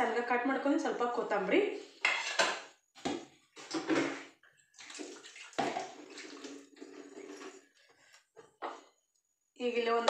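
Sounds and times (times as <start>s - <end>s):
water running and splashing: 4.8s - 7.7s.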